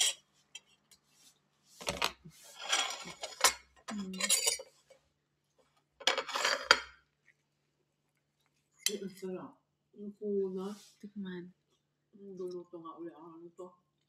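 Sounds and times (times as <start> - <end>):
metal fork scraping glass plate: 2.6 - 4.7.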